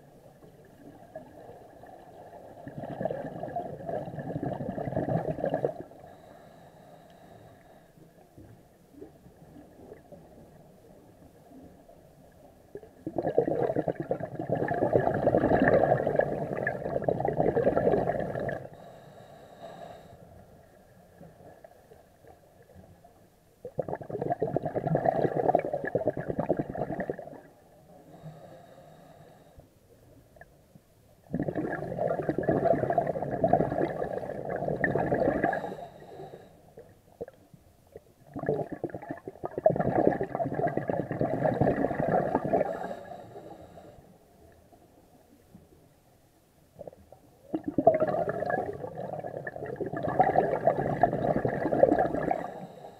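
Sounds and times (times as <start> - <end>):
underwater regulator bubbling: 2.6 - 6.2, 12.8 - 19.0, 23.6 - 27.5, 31.3 - 35.8, 38.3 - 43.0, 46.8 - 52.8.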